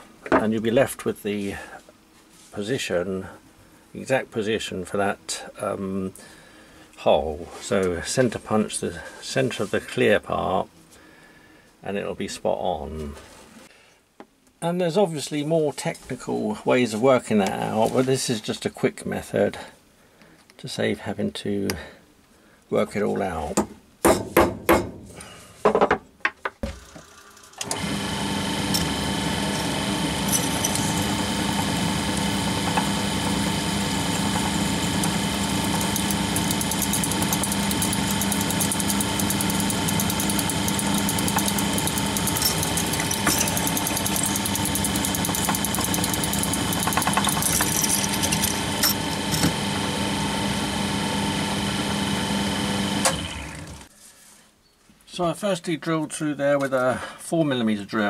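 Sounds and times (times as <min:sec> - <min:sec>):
drill press drilling metal: 0:26.6 - 0:53.9
centre punch tapping metal: 0:35.5 - 0:49.5.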